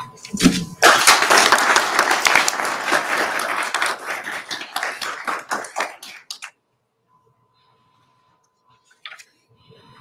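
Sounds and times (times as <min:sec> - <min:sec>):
audience applause: 0:00.8 - 0:06.5.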